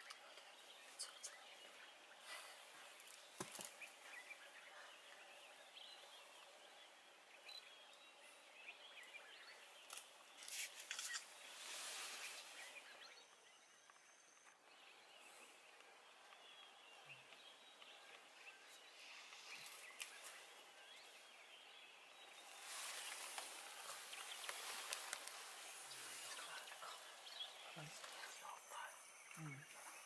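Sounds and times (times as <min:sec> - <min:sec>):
faint bird chirps: 0:00.0 - 0:30.0
hissy rustle: 0:09.7 - 0:13.2, 0:18.8 - 0:21.2, 0:22.2 - 0:29.0.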